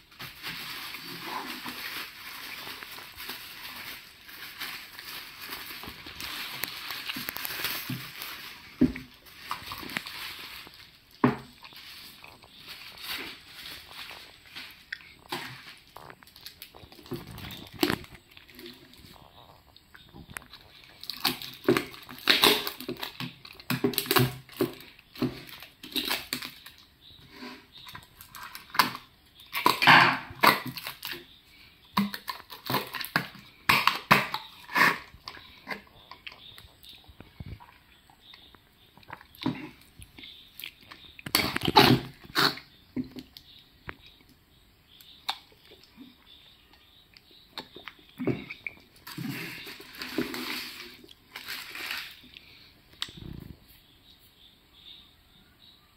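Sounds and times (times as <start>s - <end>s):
packaging crinkling: 0.0s - 19.6s, 20.2s - 26.9s, 32.0s - 35.6s, 48.9s - 52.5s.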